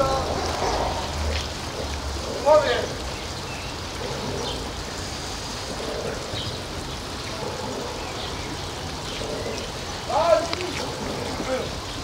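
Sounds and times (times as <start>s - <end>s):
steady rushing noise: 0.0s - 7.0s.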